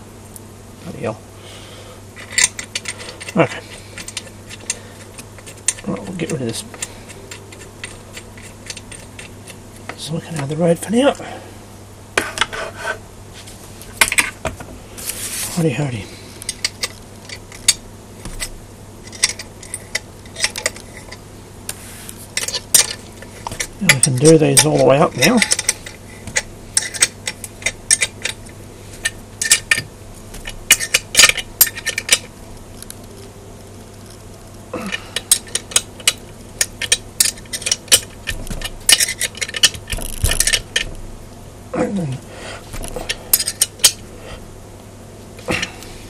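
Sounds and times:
spanner clinking on bolts: 2.2 - 4.8, 5.4 - 10.0, 19.1 - 21.2, 22.4 - 32.3, 34.9 - 41.0, 42.8 - 44.0.

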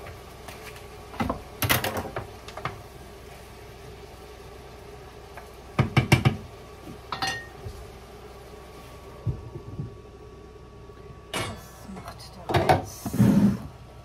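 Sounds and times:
faint steady hum: 0.0 - 14.0
wooden spatula scraping frying pan: 13.0 - 13.7.

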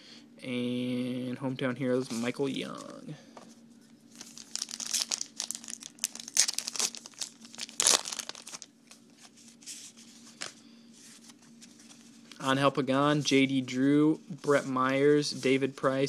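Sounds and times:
cards rustling: 4.1 - 12.4
card pack wrapper tearing: 4.2 - 8.7.

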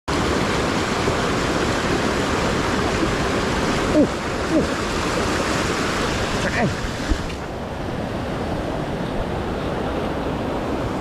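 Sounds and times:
stream rushing over rocks: 0.1 - 11.0.

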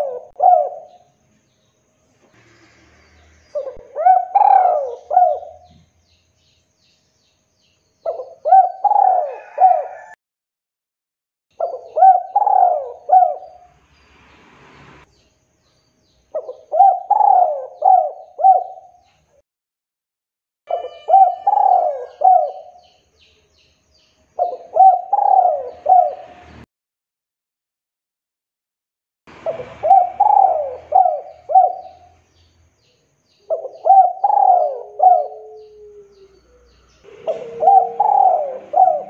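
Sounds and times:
dove cooing: 0.0 - 1.1, 3.5 - 5.8, 8.0 - 10.2, 11.6 - 13.7, 16.3 - 19.0, 20.7 - 23.0, 24.4 - 26.4, 29.4 - 32.2, 33.5 - 39.0.

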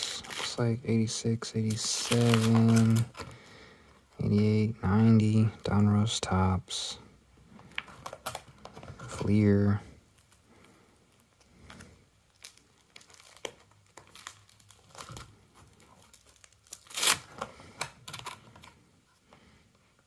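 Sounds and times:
plastic binder pages rustling: 1.6 - 3.4, 7.6 - 9.4, 11.1 - 18.8.

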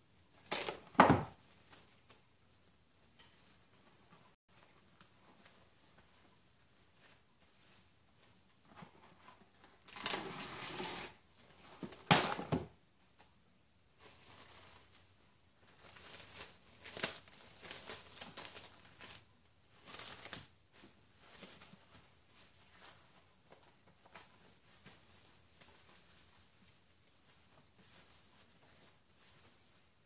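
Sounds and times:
plastic wrap crinkling: 14.0 - 26.6.

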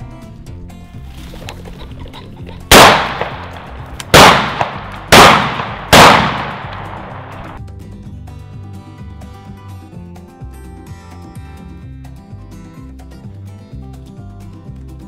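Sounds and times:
background music: 0.0 - 15.0
shotgun shots: 2.7 - 7.6.

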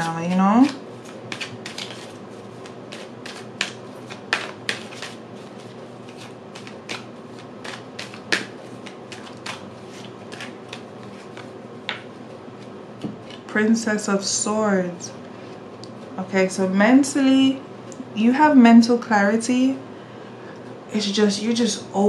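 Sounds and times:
cards being shuffled: 0.0 - 13.5.

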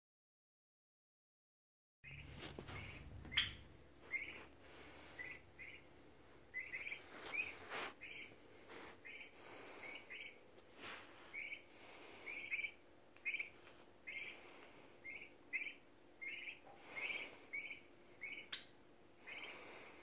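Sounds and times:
turkey poults peeping: 2.1 - 10.4, 11.1 - 20.0.

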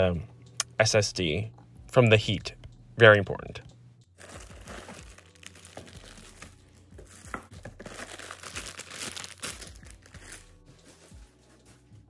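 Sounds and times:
plastic packaging crinkling: 4.2 - 10.5.

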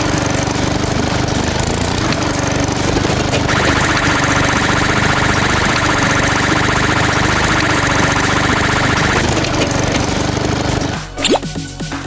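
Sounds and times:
cartoon vehicle engine running: 0.0 - 11.4
high pulsing buzz: 3.5 - 9.4.

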